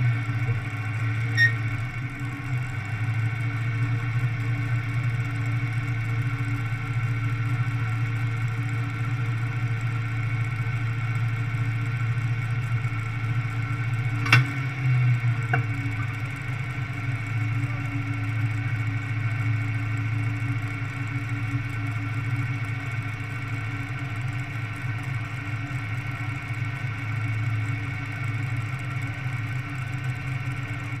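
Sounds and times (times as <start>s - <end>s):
tractor engine idling: 0.0s - 31.0s
sharp click: 14.2s - 14.5s.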